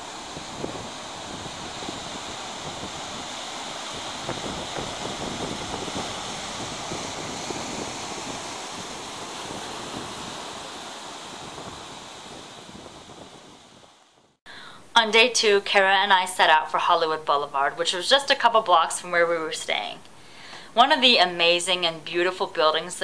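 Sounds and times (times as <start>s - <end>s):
ocean waves breaking: 0.0s - 14.2s.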